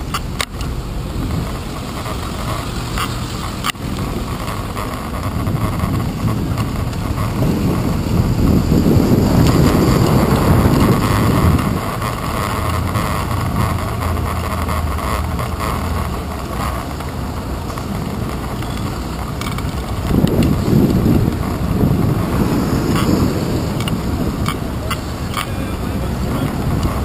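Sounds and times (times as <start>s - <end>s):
bicycle road noise: 0.0s - 27.0s
cars passing: 0.0s - 27.0s
wind noise: 0.0s - 27.0s
light ticks: 0.1s - 0.7s, 22.8s - 27.0s.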